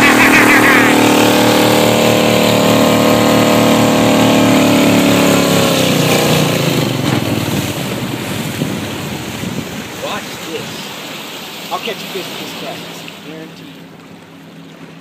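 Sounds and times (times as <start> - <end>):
motorboat engine: 0.0 - 15.0
water splashing: 0.0 - 15.0
wind noise: 7.3 - 10.0.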